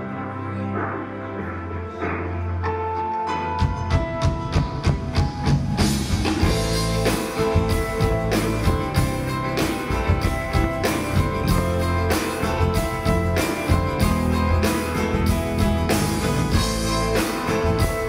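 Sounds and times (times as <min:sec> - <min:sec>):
electric guitars: 0:00.0 - 0:18.0
bass guitar: 0:03.4 - 0:18.0
drum kit beat: 0:03.6 - 0:18.0.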